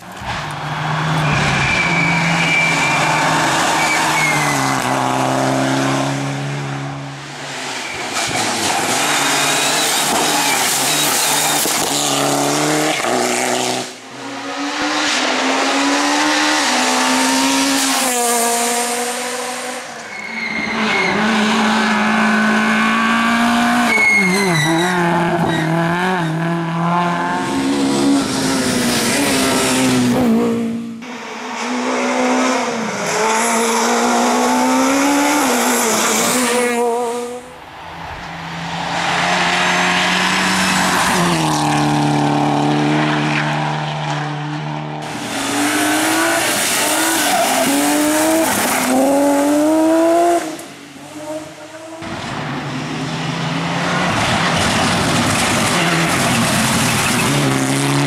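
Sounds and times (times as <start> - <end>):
rally car engines revving: 0.0 - 58.0
tyre squeal: 1.1 - 5.0, 7.8 - 12.0, 19.9 - 21.5, 23.8 - 26.4, 55.8 - 57.5.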